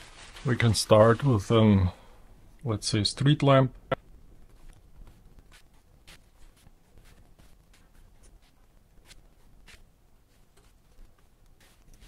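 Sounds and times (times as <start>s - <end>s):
pen nib scratching on paper: 4.6s - 12.0s.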